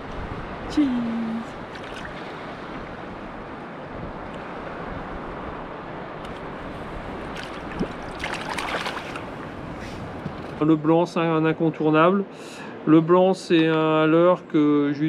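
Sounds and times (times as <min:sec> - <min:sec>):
surf: 0:00.0 - 0:13.7
wind: 0:00.0 - 0:15.0
water splash: 0:01.6 - 0:02.4, 0:07.2 - 0:09.6.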